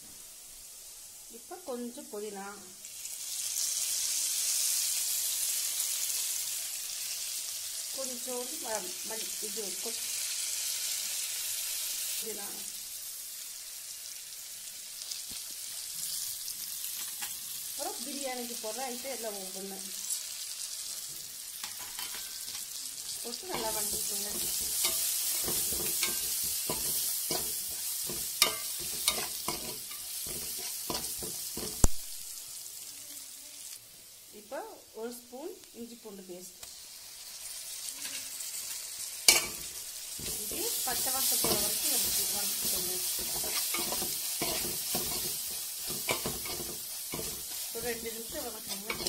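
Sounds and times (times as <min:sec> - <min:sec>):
onions sizzling in oil: 0:00.0 - 0:49.0
spoon scraping metal pot: 0:23.5 - 0:31.9, 0:41.4 - 0:47.7, 0:48.6 - 0:49.0.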